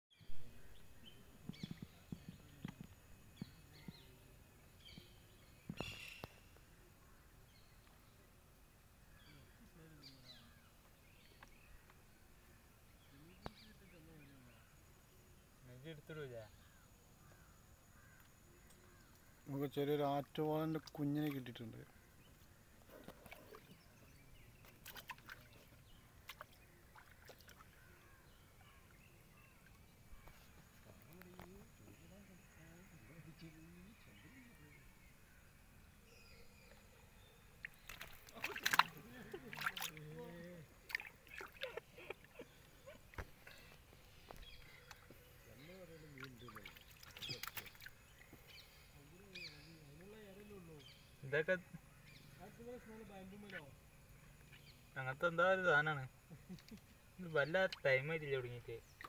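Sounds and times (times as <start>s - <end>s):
birds chirping: 0.1s - 59.0s
steady background hiss: 0.4s - 59.0s
small water splashes: 20.2s - 31.1s, 37.5s - 48.6s, 57.6s - 58.1s, 58.8s - 59.0s.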